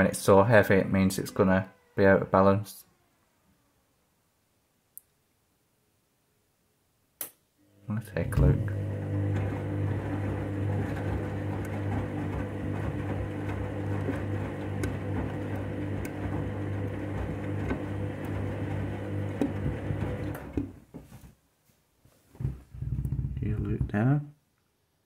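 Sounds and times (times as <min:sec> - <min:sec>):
washing machine motor humming: 0:07.6 - 0:20.8.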